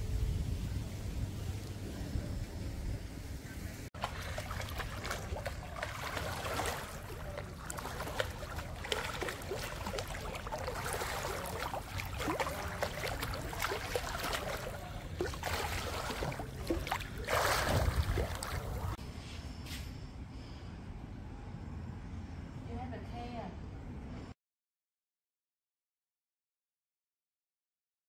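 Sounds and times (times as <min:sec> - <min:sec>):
water splashing and trickling: 0:03.9 - 0:19.0
water rushing: 0:04.0 - 0:19.0.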